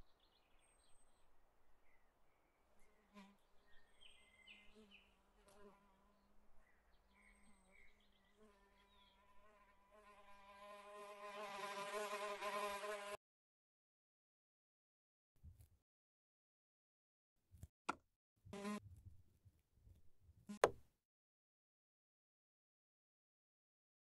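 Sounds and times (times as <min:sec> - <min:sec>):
faint bird chirps: 0:00.0 - 0:05.2, 0:05.9 - 0:09.4
insect buzzing in flight: 0:08.5 - 0:13.2.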